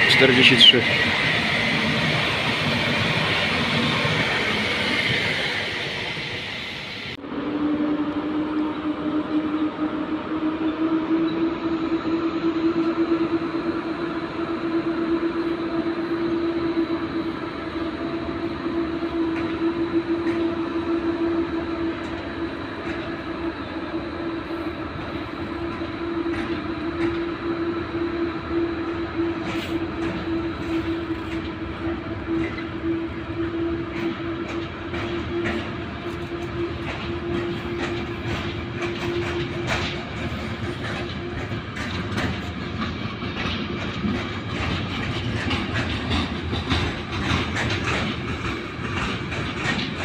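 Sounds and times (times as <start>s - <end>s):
freight train rolling past: 0.0s - 50.0s
wheels clicking over rail joints: 33.9s - 50.0s.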